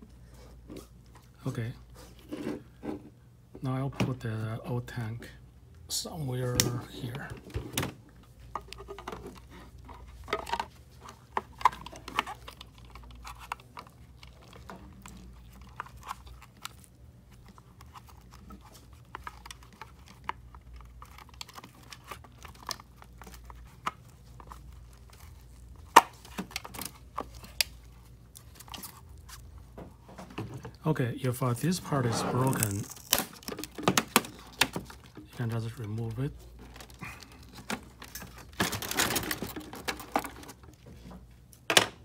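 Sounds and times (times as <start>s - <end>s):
plastic tank handling clicks and rustling: 6.5s - 16.8s, 32.4s - 36.0s, 36.6s - 42.0s.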